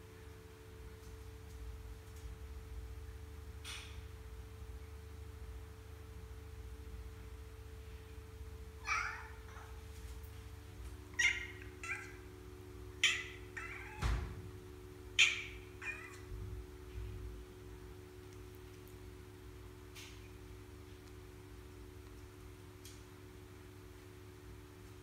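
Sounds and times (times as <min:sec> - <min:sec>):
cat meowing: 0:08.8 - 0:09.8, 0:11.2 - 0:12.2, 0:13.0 - 0:14.1, 0:15.2 - 0:16.3.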